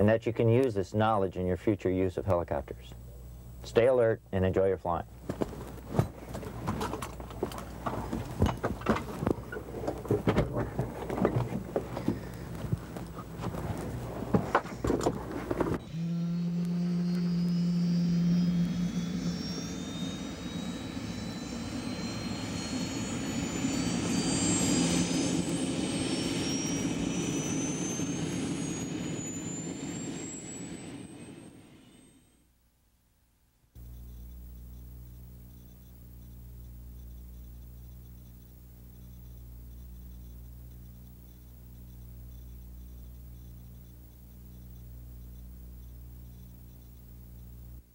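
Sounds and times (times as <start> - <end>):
low hum: 0.0 - 32.5, 33.8 - 47.9
helicopter turbine whine spooling up: 7.3 - 14.0, 14.7 - 32.4.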